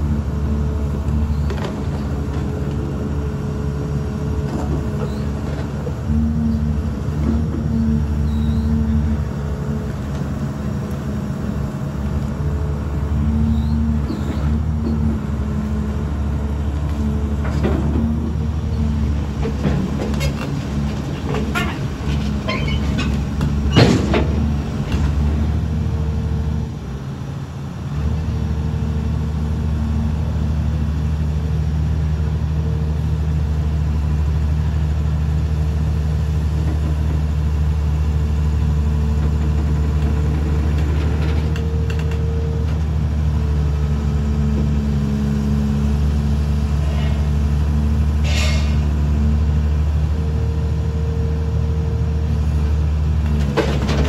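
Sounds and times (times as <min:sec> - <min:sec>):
excavator diesel engine under load: 0:00.0 - 0:54.0
sharp metal clank: 0:48.2 - 0:48.8.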